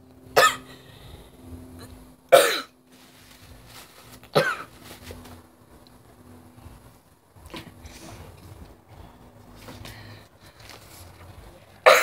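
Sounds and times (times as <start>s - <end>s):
girl coughing: 0.4s - 0.7s, 2.3s - 2.8s, 4.4s - 4.7s.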